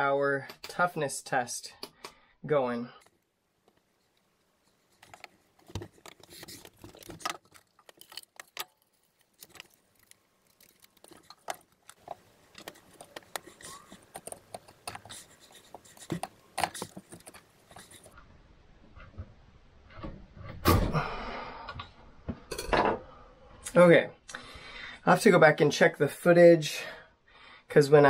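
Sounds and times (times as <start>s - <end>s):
gear clattering on wooden table: 5.0s - 18.1s.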